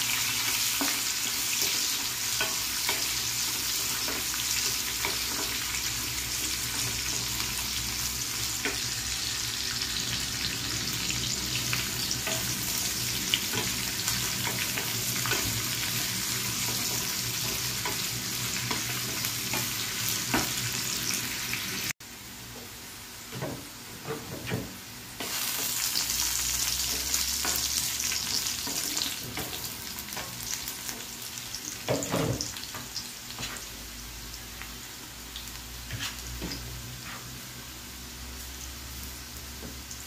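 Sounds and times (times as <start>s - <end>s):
onions sizzling in hot oil: 0.0s - 40.0s
wooden spatula scraping pan: 35.8s - 37.4s.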